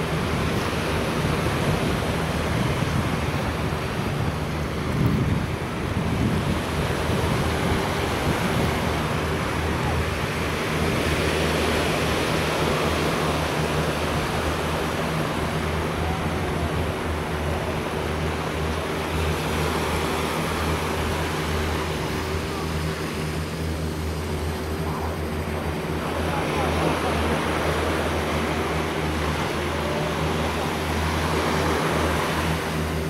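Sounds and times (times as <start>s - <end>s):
wind noise: 0.0s - 25.8s
engine hum: 0.0s - 33.0s
surf: 0.0s - 33.0s.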